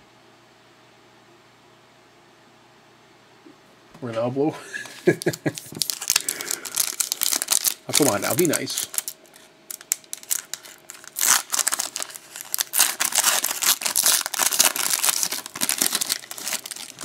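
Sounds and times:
card pack wrapper crinkling and tearing: 5.0s - 17.0s.

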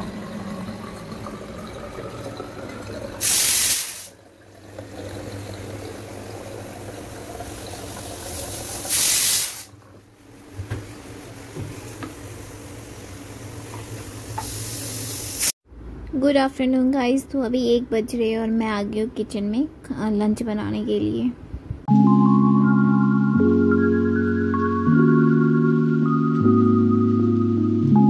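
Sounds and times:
water running into bottle: 0.0s - 9.8s
water purifier hum: 0.0s - 15.4s
short bursts of hiss: 3.2s - 4.1s, 8.9s - 9.7s, 14.4s - 15.6s.

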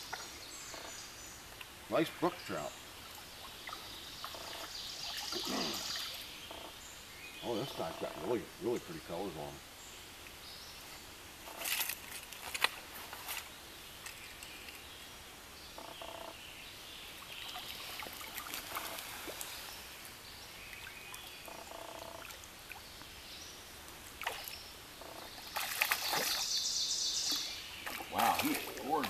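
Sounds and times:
flowing water hiss: 0.0s - 29.0s
fish splashing in water: 25.5s - 26.5s, 27.3s - 29.0s.

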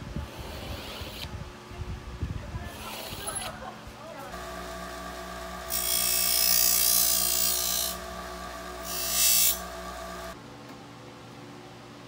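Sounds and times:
bench grinder motor hum: 4.3s - 10.4s
metal grinding on wheel: 4.4s - 10.4s.

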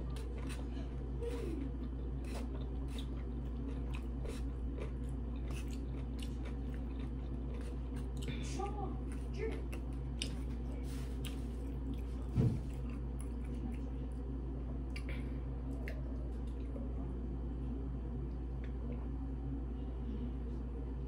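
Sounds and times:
chewing: 0.0s - 14.2s
steady low hum: 0.0s - 21.0s.

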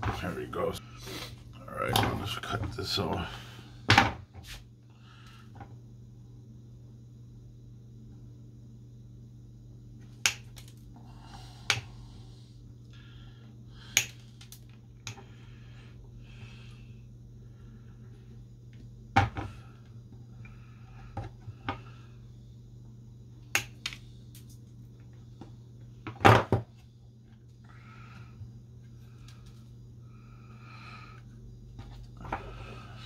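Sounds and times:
steady low hum: 0.0s - 33.0s
nail clipper snapping: 10.2s - 10.6s.

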